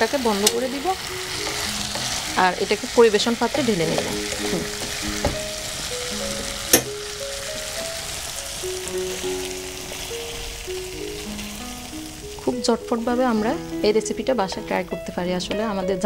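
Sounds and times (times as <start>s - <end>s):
food sizzling in a wok: 0.0s - 16.0s
soft background music: 0.0s - 16.0s
wooden spatula scraping a wok: 1.3s - 2.4s.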